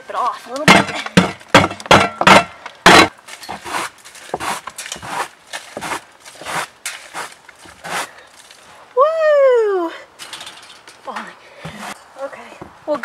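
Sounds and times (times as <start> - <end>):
broom chipping ice: 2.9 - 8.6
broom scraping sweeps: 3.3 - 8.2, 11.6 - 12.0.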